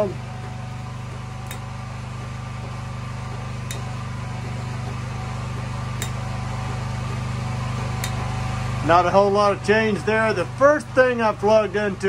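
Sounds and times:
generator engine running: 0:00.0 - 0:12.0
lamp switch clicks: 0:01.4 - 0:01.7, 0:03.6 - 0:04.0, 0:06.0 - 0:06.3, 0:08.0 - 0:08.3.

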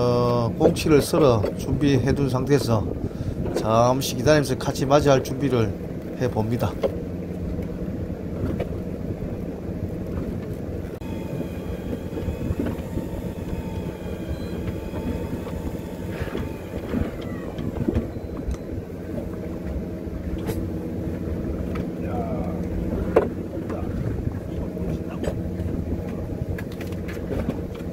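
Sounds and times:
boat engine humming: 0:00.0 - 0:27.9
faint steady whine: 0:10.8 - 0:23.0.

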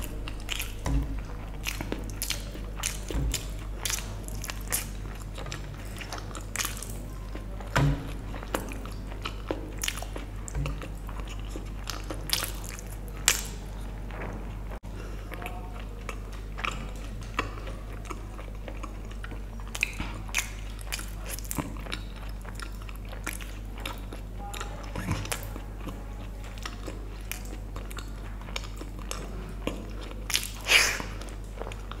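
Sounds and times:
chewing: 0:00.0 - 0:32.0
steady low hum: 0:00.0 - 0:32.0
lip smacks: 0:30.3 - 0:31.8.

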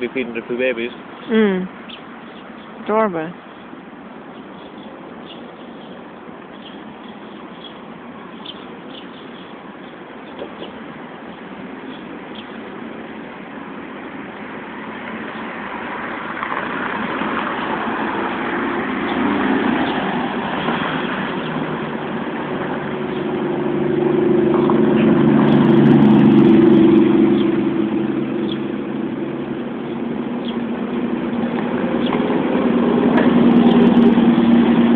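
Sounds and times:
vehicle engine running: 0:20.8 - 0:34.9.

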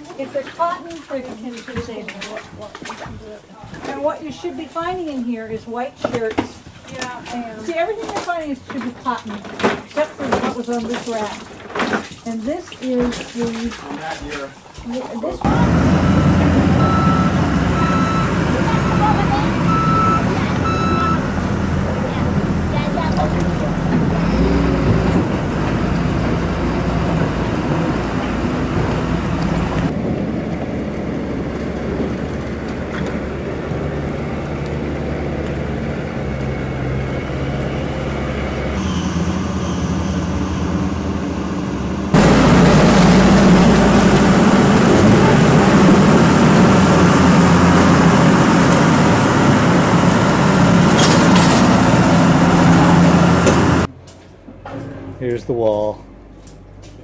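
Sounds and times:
machinery drone with low hum: 0:15.4 - 0:54.0.

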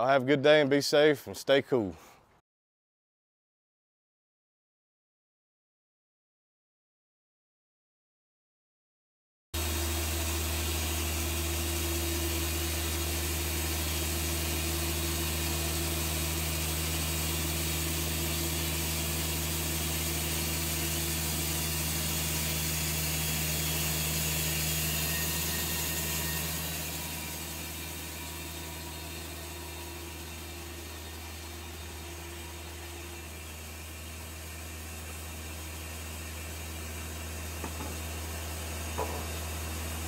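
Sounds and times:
band sawmill running: 0:09.6 - 0:40.0.

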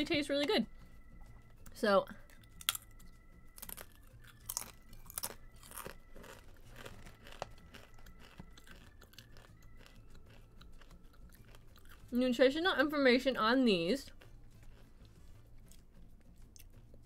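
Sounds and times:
person crunching tortilla chip: 0:02.3 - 0:03.0, 0:03.6 - 0:12.1.

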